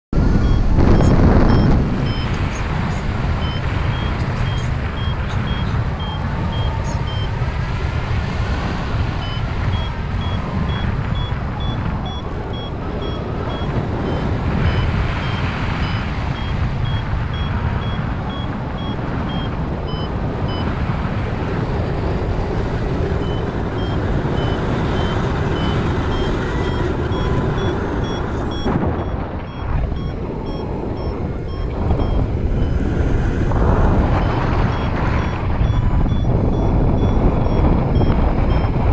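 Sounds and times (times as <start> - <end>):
wind buffeting microphone: 0.1 - 38.9
variometer beeping: 0.2 - 38.9.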